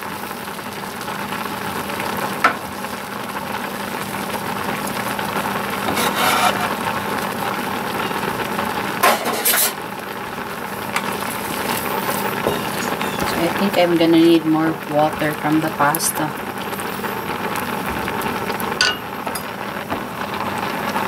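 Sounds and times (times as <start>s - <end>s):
sauce simmering and sizzling: 0.0s - 21.0s
wooden spoon scraping a pan: 5.7s - 7.0s, 9.0s - 9.8s.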